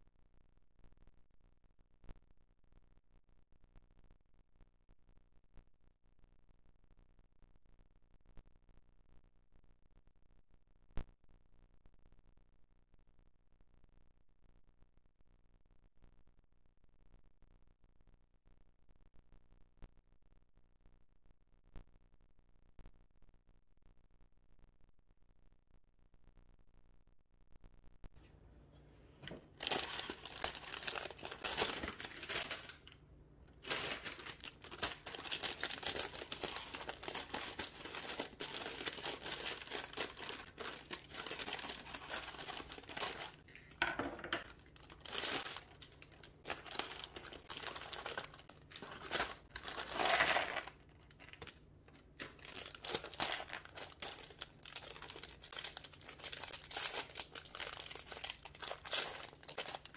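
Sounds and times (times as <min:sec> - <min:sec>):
plastic bags crinkling: 0:29.2 - 0:59.9.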